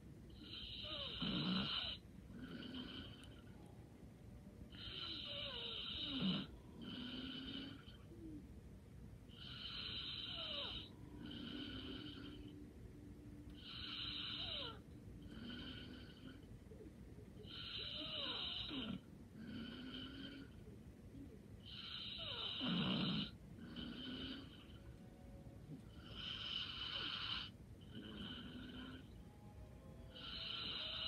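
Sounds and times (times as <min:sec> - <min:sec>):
light snoring: 0:00.3 - 0:03.7, 0:04.7 - 0:08.4, 0:09.3 - 0:12.6, 0:13.5 - 0:16.8, 0:17.4 - 0:29.3, 0:30.1 - 0:31.0.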